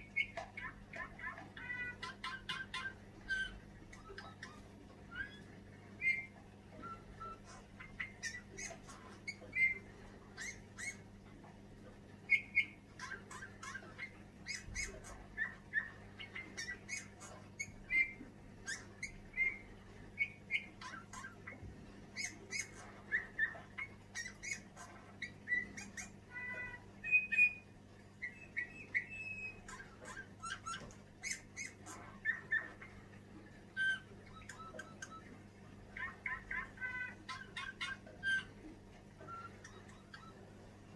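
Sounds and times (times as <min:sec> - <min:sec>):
bullfinch singing quiet song: 0:22.2 - 0:32.8.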